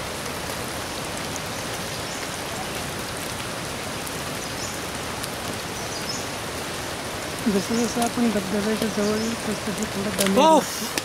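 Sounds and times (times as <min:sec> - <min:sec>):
water running over rocky trail: 0:00.0 - 0:11.0.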